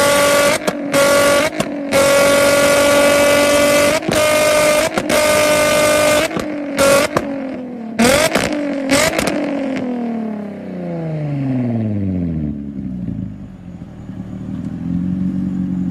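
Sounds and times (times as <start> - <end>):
exhaust bangs: 0.0 - 9.8
car engine revving: 0.0 - 15.9.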